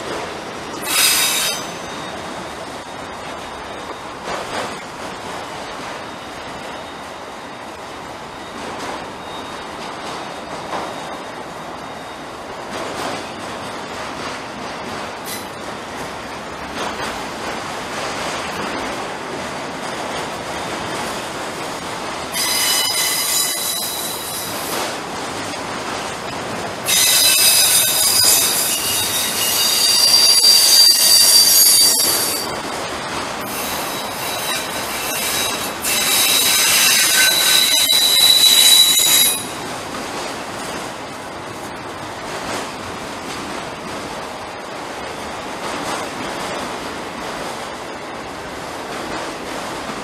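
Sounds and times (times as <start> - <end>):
freight train rumbling past: 0.0 - 50.0
train wheels squealing: 0.7 - 4.8, 5.4 - 14.0, 15.2 - 15.7, 22.3 - 25.0, 26.8 - 32.6, 33.4 - 39.8.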